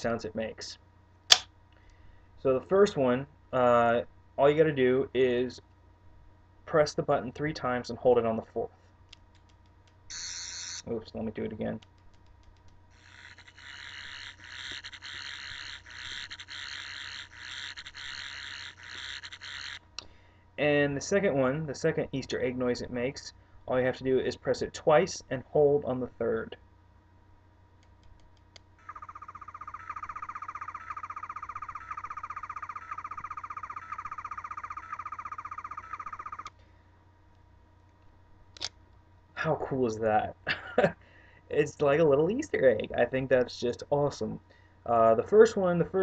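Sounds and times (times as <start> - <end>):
warbling electronic tone: 10.1 - 10.9, 12.9 - 19.8, 28.8 - 36.5
toy wavering pulsed buzz: 10.1 - 11.0, 12.9 - 19.9, 28.8 - 36.5.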